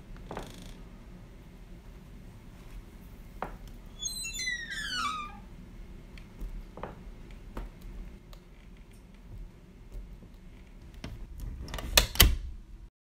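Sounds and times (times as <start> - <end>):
door hinge creaking: 3.9 - 5.5.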